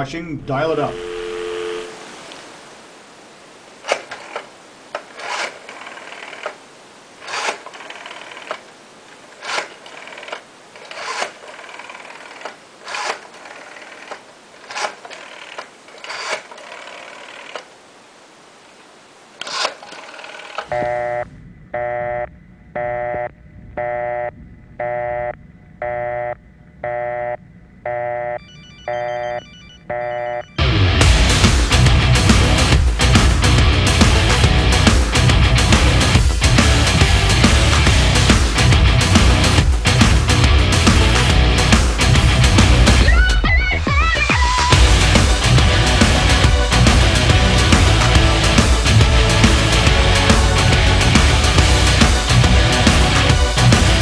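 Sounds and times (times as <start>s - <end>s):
telephone line hiss: 0.0s - 2.6s, 19.4s - 30.7s
repeating telephone tone: 0.5s - 2.0s, 20.7s - 30.7s
rotary dial clicking: 5.0s - 6.6s, 7.2s - 8.6s, 9.4s - 17.7s, 19.4s - 20.7s.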